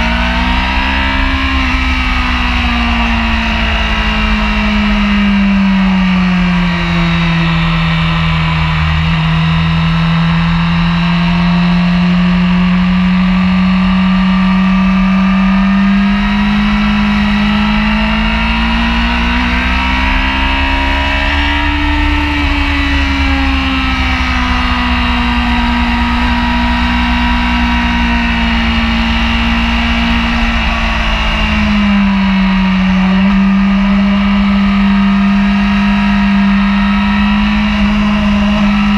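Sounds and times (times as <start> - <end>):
motorcycle engine running hard: 0.0 - 38.9
wind rush: 36.8 - 38.9.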